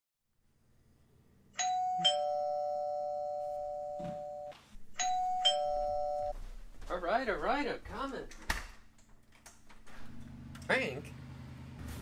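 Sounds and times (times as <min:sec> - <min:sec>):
two-tone doorbell chime: 0:01.6 - 0:06.4.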